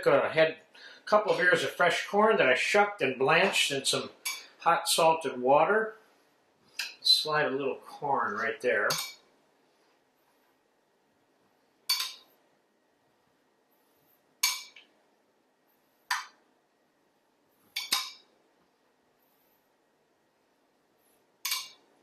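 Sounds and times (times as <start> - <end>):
metal spoon clinking on plate: 11.9 - 12.2, 17.8 - 18.2, 21.5 - 21.8.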